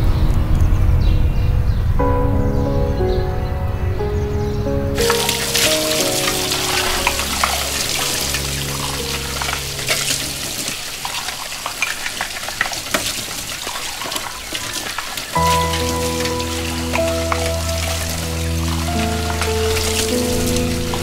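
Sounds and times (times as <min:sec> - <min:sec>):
soft background music: 0:00.0 - 0:10.8, 0:15.4 - 0:21.0
tap water splashing: 0:05.0 - 0:21.0.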